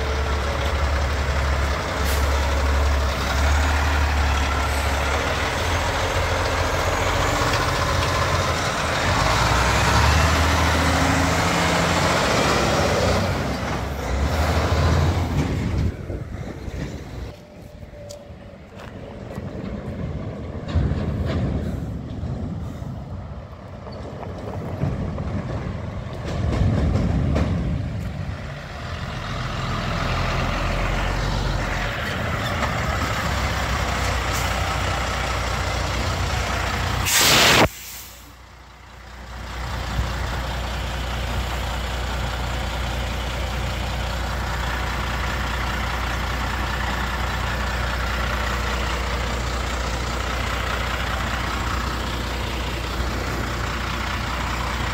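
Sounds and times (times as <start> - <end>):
diesel trucks running past: 0.0 - 54.9
truck engine idling: 0.0 - 54.9
air-brake hiss: 37.0 - 38.4.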